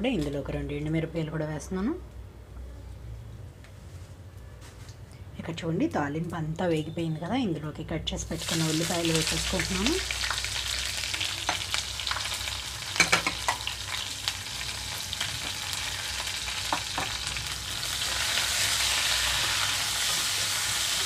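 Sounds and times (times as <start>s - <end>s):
onions sizzling in hot oil: 8.3s - 21.0s.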